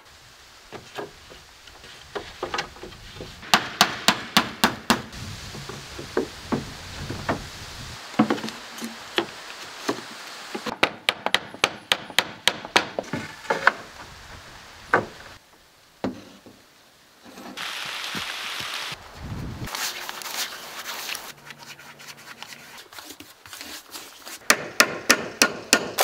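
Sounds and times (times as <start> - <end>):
hammer striking wooden boards: 3.4 - 5.1, 10.7 - 13.8, 24.4 - 26.0.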